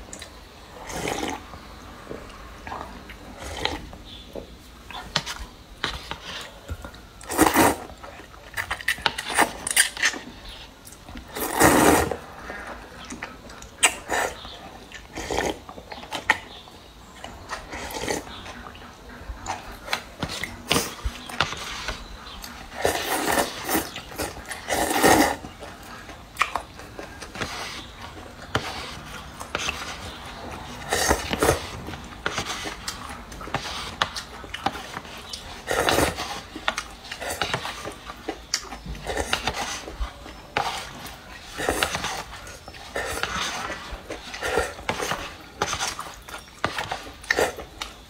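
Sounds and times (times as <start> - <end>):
chewing: 4.8 - 48.0
person slurping noodles: 7.3 - 7.9, 11.3 - 12.3, 22.8 - 25.5.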